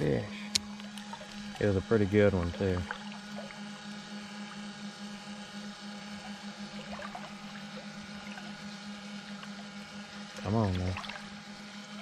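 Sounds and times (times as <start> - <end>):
electric motor humming and whining: 0.0 - 12.0.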